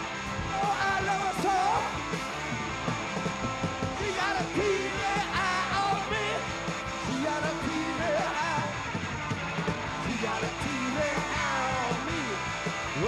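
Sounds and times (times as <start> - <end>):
punk rock band playing: 0.0 - 13.0
man singing: 0.4 - 2.0, 4.0 - 8.7, 10.0 - 13.0.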